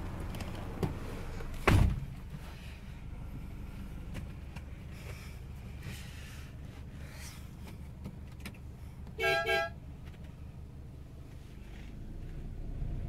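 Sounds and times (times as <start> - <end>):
vehicle horn toots: 9.2 - 9.8.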